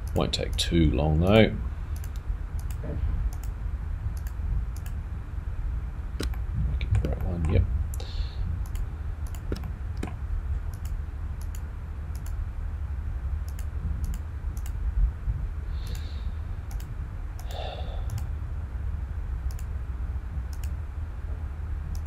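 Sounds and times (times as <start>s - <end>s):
low steady hum: 0.0s - 22.0s
computer mouse clicking: 2.0s - 3.6s, 4.2s - 5.0s, 6.2s - 12.4s, 13.5s - 14.8s, 15.8s - 16.1s, 16.7s - 18.3s, 19.5s - 19.7s, 20.5s - 20.8s.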